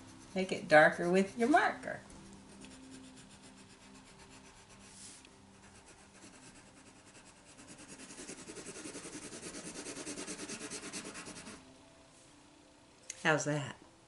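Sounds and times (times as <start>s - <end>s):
pencil scratching on paper: 0.0s - 1.8s, 2.5s - 11.6s.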